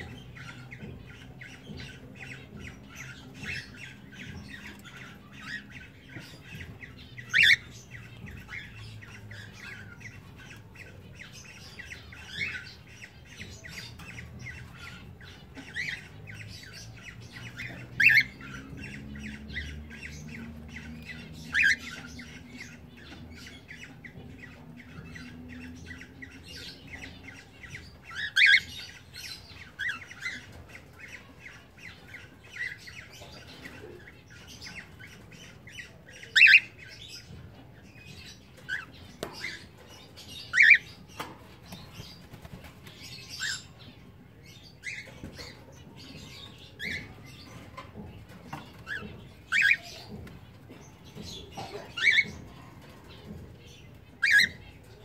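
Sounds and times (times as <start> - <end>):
chatter of small chirps: 0.0 - 55.0
cockatiels squawking: 0.4 - 16.4, 21.1 - 25.3, 25.9 - 37.3, 38.2 - 41.3, 46.2 - 50.1, 51.2 - 52.6, 54.2 - 54.8.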